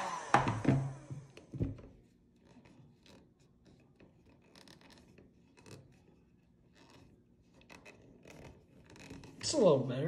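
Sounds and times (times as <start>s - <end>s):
fingertips rubbing vinyl wrap: 2.3s - 9.9s.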